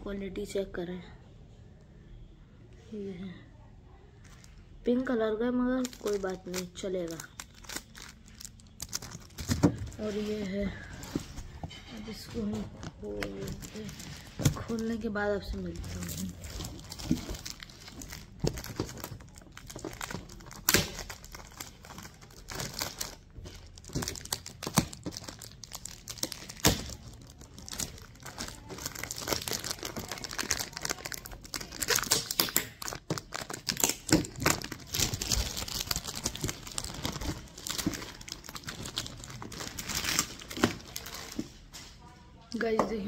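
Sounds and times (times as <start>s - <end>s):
plastic wrapping crinkling and tearing: 5.7s - 41.8s.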